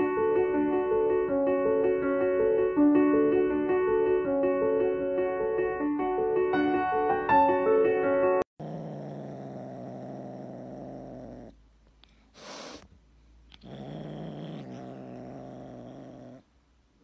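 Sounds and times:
kitten purring: 8.6s - 11.6s, 13.5s - 16.5s.

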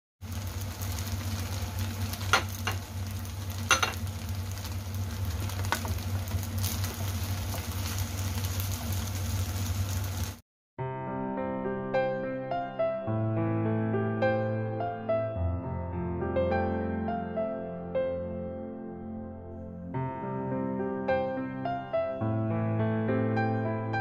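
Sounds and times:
noodles sizzling in a wok: 0.2s - 10.4s.

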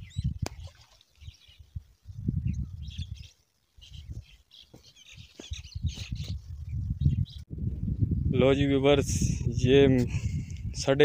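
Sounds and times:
small birds chirping: 0.0s - 8.3s
low rumbles on microphone: 5.2s - 11.0s.

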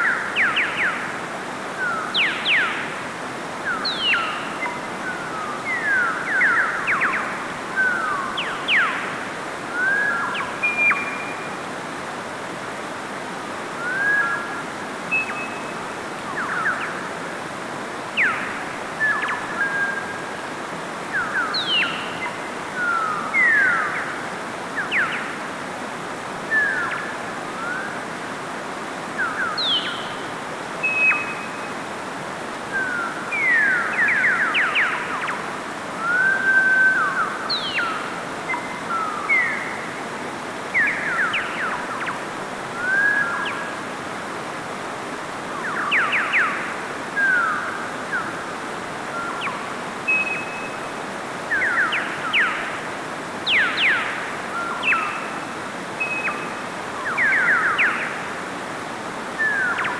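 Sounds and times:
birds whistling chirps: 1.8s - 2.9s, 3.7s - 9.2s, 9.8s - 11.6s, 13.8s - 17.1s, 18.2s - 20.3s, 21.1s - 24.2s, 26.5s - 28.0s, 29.2s - 30.2s, 30.8s - 31.8s, 32.7s - 39.9s, 42.8s - 43.8s, 45.6s - 48.4s, 49.1s - 52.8s, 53.4s - 58.2s, 59.3s - 59.9s
stream cascading over rocks: 50.7s - 59.9s.

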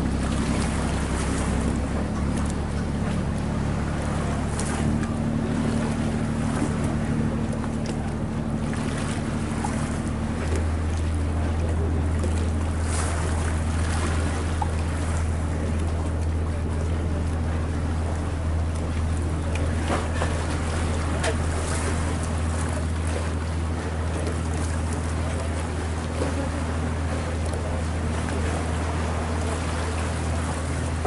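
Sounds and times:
boat engine droning: 0.0s - 31.0s.

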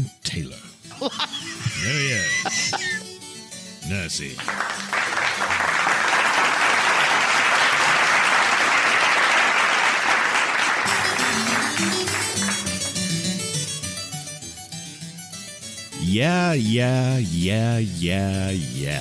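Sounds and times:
applause: 4.3s - 13.0s.

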